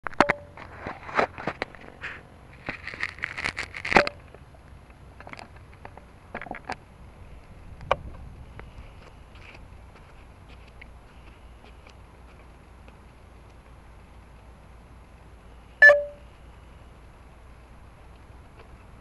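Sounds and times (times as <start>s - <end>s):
handling clicks and rustles: 0.0s - 14.5s.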